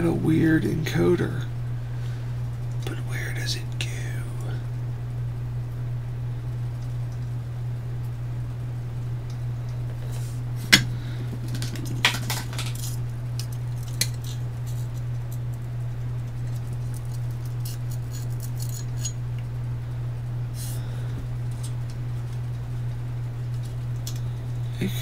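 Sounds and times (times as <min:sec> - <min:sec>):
steady low hum: 0:00.0 - 0:25.0
small parts clicking and clinking: 0:11.4 - 0:14.4, 0:16.4 - 0:19.2.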